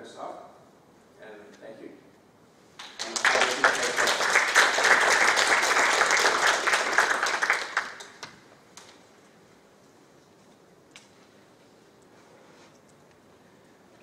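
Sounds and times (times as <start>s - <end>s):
audience applauding: 2.8s - 8.4s.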